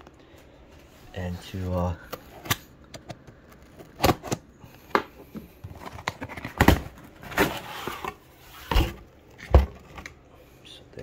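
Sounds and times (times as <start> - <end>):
cardboard scraping and rustling: 5.6 - 10.1.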